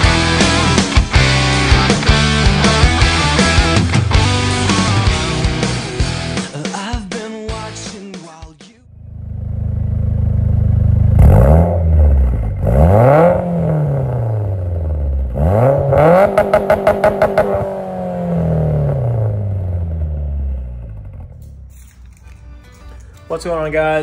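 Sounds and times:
car engine idling and revving: 8.9s - 21.7s.

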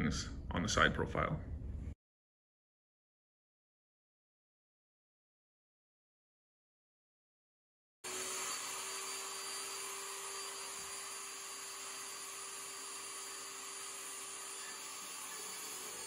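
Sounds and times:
table saw cutting foam board: 8.0s - 16.0s.

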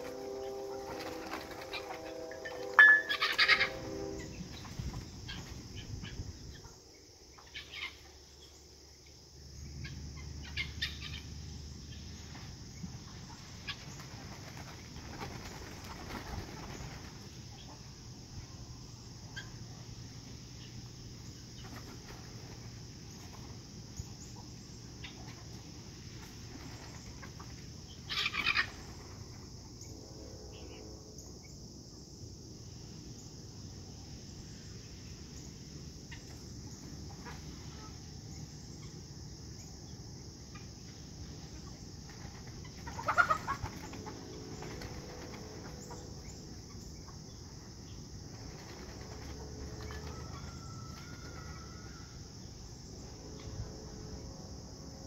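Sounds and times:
chickens clucking: 0.0s - 6.8s, 24.1s - 29.1s, 36.1s - 38.0s, 41.6s - 51.5s
loud short chicken calls: 0.8s - 4.8s, 42.8s - 44.1s.

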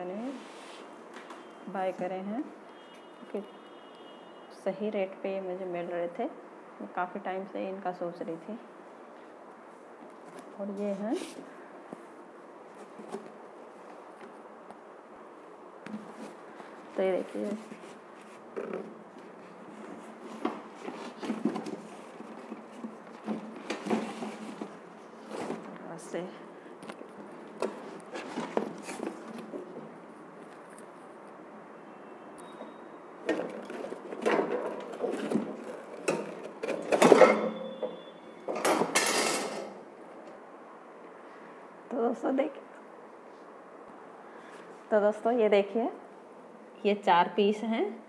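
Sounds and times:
cardboard rustling: 15.9s - 25.8s, 26.8s - 31.0s, 33.2s - 37.0s.

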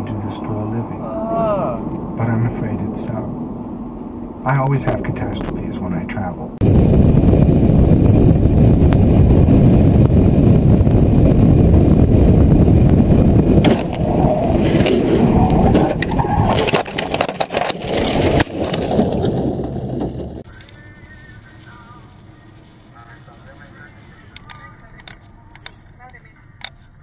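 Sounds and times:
vehicle rumbling: 0.0s - 27.0s
knocks and clatter: 13.6s - 20.5s.

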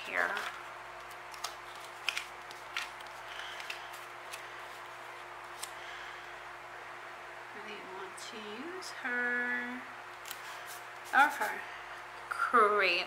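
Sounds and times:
paper ticks and rustles: 0.0s - 5.0s
steady low hum: 0.0s - 13.0s.

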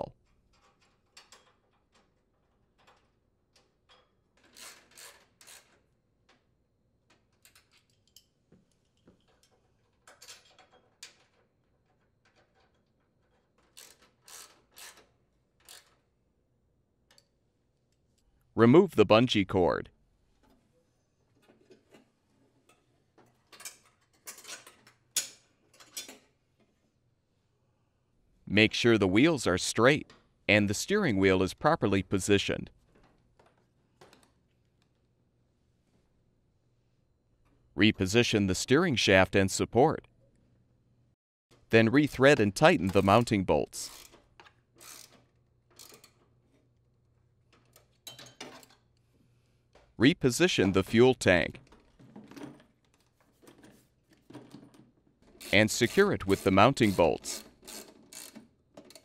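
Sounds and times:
socket ratchet clicking: 56.9s - 59.0s.

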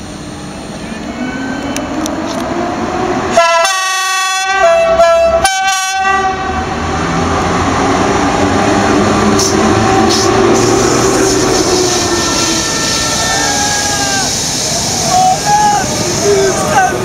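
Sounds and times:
locomotive horn blasts: 3.3s - 6.6s, 11.7s - 13.6s
train wheels rolling past: 6.5s - 17.0s.

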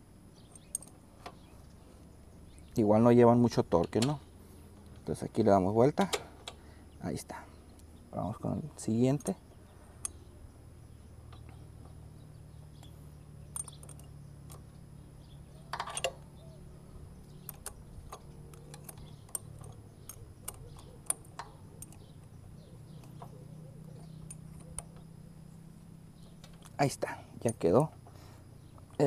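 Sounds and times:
steady low hum: 0.0s - 29.0s
wrench clinking on bolts: 0.4s - 1.4s, 12.8s - 14.7s, 15.6s - 16.4s, 17.2s - 25.1s.

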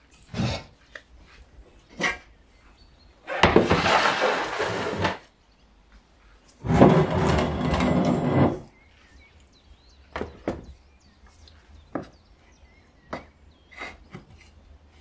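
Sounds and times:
metal bar dragged over boards: 3.3s - 5.2s, 6.6s - 8.7s
plastic box scraping on wood: 3.3s - 5.3s, 6.6s - 8.7s.

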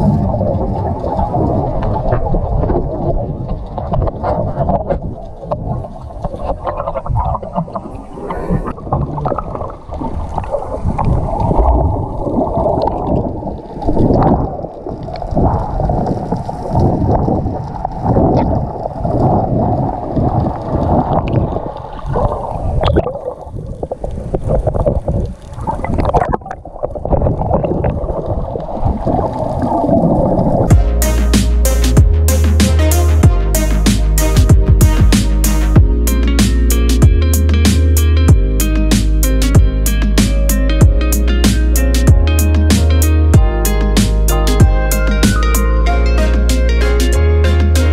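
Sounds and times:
underwater sloshing and gurgling: 0.0s - 30.7s.

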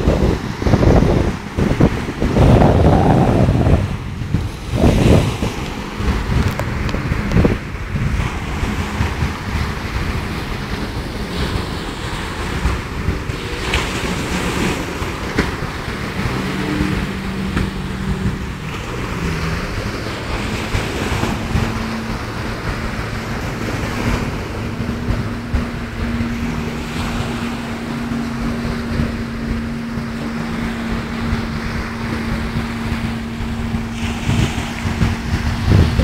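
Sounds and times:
faint jet ski engines: 0.0s - 36.0s
waves breaking at the shore: 0.0s - 36.0s
wind buffeting the microphone: 0.0s - 36.0s.

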